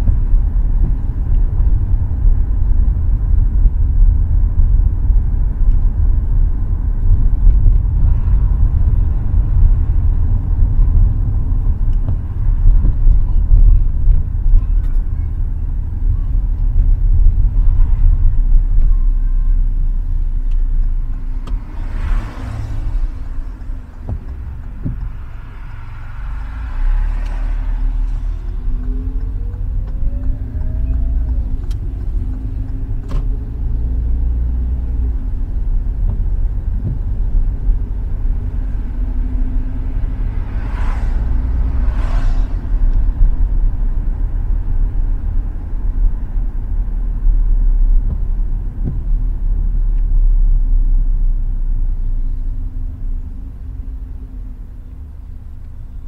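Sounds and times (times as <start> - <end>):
car engine and tyres rumbling: 0.0 - 56.0
short whooshes: 40.3 - 42.9.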